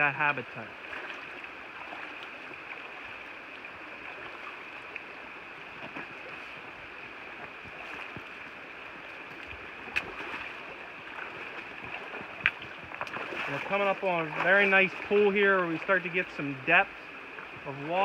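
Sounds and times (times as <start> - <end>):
creek running: 0.0 - 18.0.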